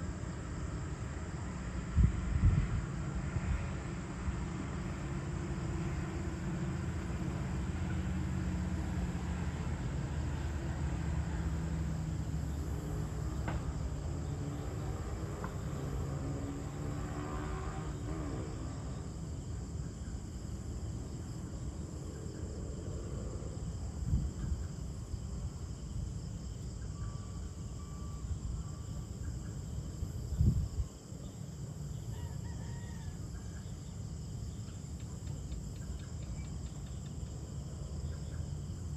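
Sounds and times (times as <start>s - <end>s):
crickets and insects chirring: 0.0s - 38.9s
rooster crowing: 32.1s - 33.7s.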